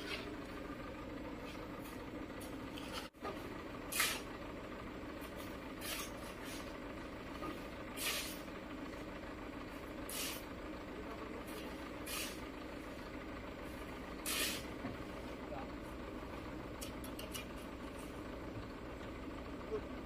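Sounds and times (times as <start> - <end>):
diesel truck engine running: 0.0 - 20.0
short hiss: 8.0 - 8.4, 14.2 - 14.7.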